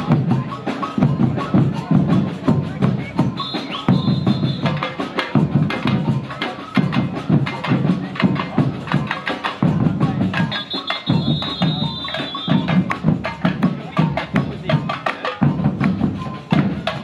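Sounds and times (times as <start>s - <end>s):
snare drum strokes: 3.2s - 9.6s, 10.3s - 17.0s
high steady whistle: 3.4s - 4.8s, 10.5s - 12.8s.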